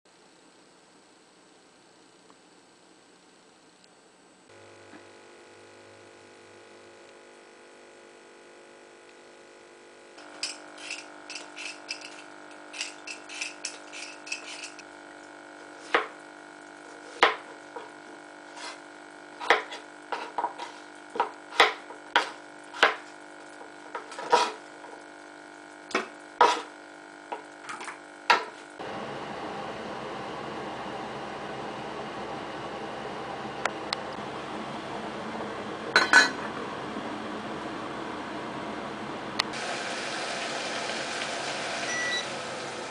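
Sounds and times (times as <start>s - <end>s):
knife cutting on cutting board: 18.5s - 18.8s, 24.0s - 24.6s, 26.0s - 26.8s.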